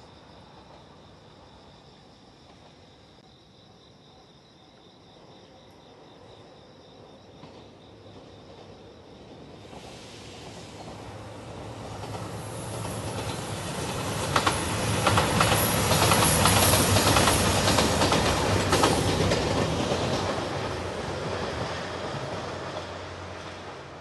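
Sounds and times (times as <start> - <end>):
train engines droning: 5.2 - 24.0
train wheels clicking over rail joints: 9.6 - 24.0.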